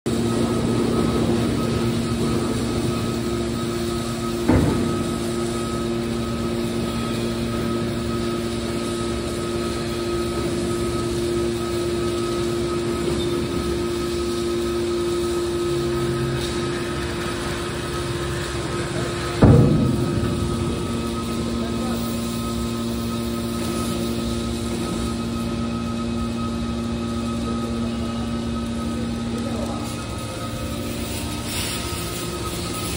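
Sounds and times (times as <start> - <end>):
hydraulic power unit humming: 0.1 - 32.9
baler clunk: 19.4 - 22.3.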